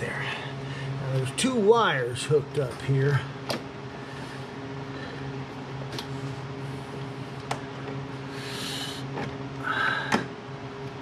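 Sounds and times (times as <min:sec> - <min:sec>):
low shop hum: 0:00.0 - 0:11.0.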